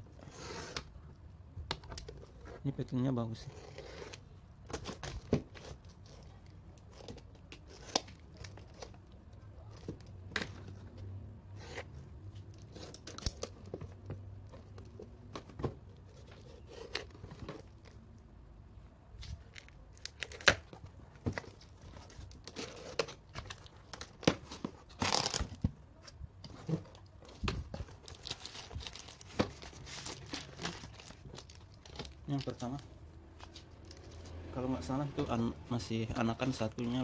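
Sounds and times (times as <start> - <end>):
cardboard scraping: 0.1 - 0.9
tape tearing: 3.7 - 9.0, 19.2 - 20.8, 21.4 - 25.7.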